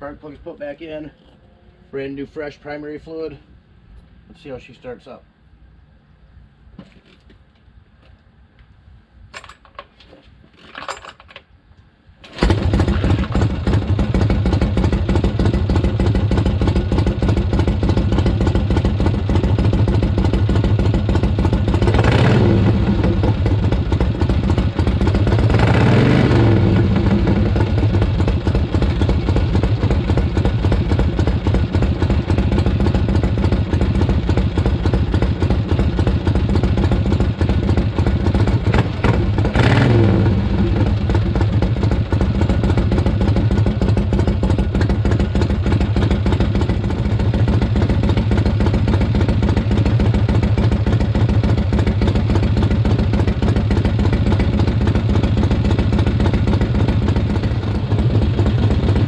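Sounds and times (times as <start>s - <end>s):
motorcycle engine kick-started and revving: 12.2s - 59.0s.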